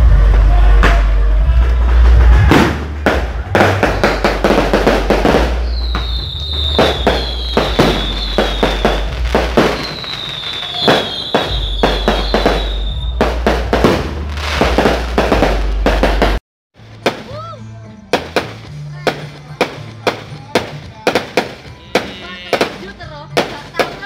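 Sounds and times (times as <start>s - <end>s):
fireworks bangs and crackles: 0.0s - 17.4s, 18.0s - 24.0s
falling high whistles: 5.5s - 9.1s, 9.7s - 13.2s.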